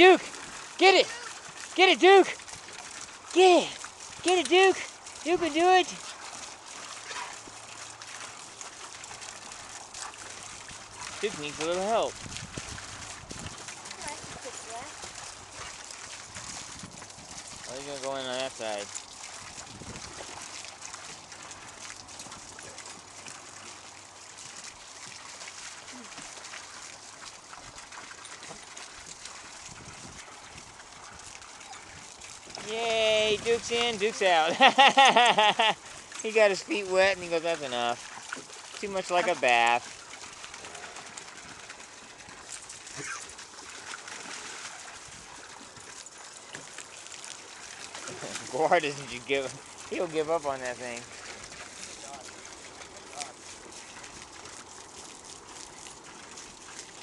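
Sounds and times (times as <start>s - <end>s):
dogs sloshing through water: 0.0s - 57.0s
water splashing into pool: 0.0s - 57.0s.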